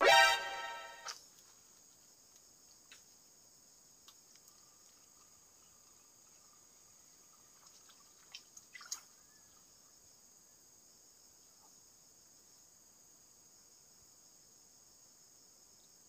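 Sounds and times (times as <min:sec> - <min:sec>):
small ticks: 0:01.1 - 0:03.2, 0:04.0 - 0:09.6
light watery plop: 0:07.1 - 0:09.3.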